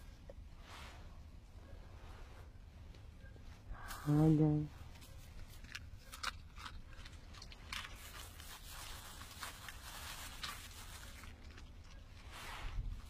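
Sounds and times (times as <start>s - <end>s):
dog chewing and crunching food: 4.9s - 13.0s.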